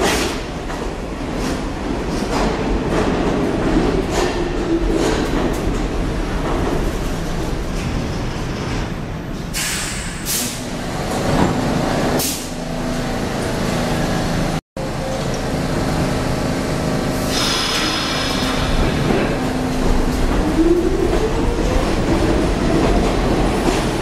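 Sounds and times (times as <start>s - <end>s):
train rumble: 0.0s - 24.0s
compressed air hissing from brakes: 9.6s - 10.6s, 17.2s - 18.9s.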